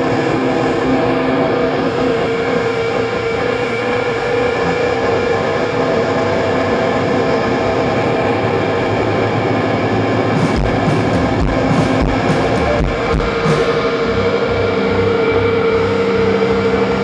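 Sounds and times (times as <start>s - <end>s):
distorted electric guitar: 0.0s - 17.0s
heavy drum hits: 10.4s - 14.0s.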